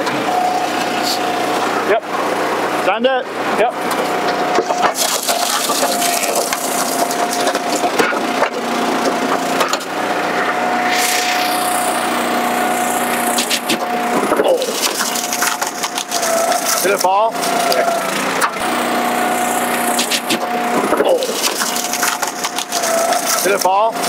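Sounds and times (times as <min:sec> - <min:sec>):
log splitter whine: 0:00.0 - 0:24.0
wood cracking and splintering: 0:04.8 - 0:08.7, 0:21.0 - 0:23.6.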